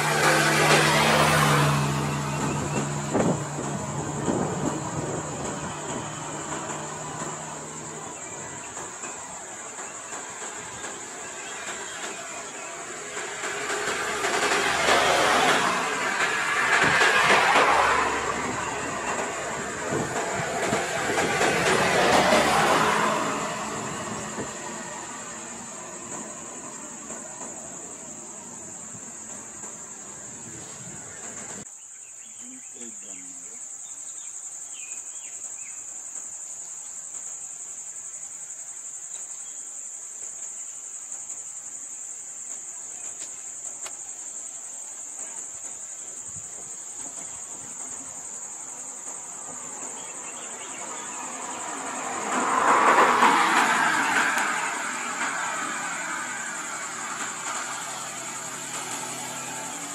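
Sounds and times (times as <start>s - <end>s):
motor vehicle passing: 0.0s - 31.6s, 47.2s - 59.9s
insects buzzing: 0.0s - 59.9s.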